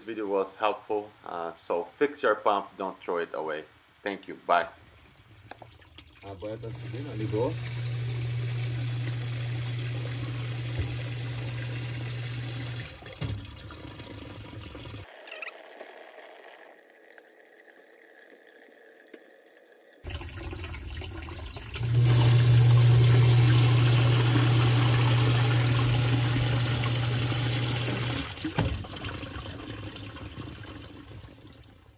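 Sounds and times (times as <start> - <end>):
water rushing through pump: 5.0 - 15.1, 16.0 - 31.9
sump pump motor hum: 6.2 - 15.0, 20.1 - 31.1.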